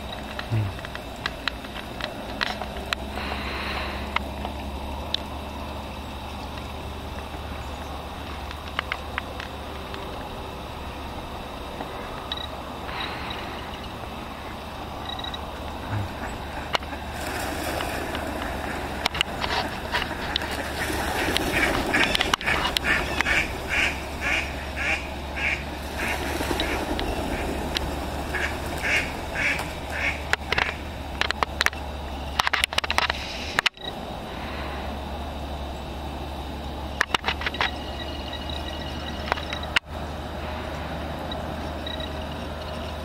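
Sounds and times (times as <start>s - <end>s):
ducks quacking: 12.9s - 30.9s.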